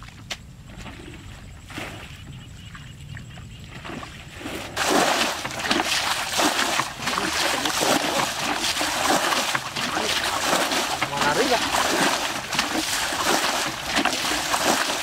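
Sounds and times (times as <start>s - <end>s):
bucket splashing muddy water: 3.8s - 15.0s.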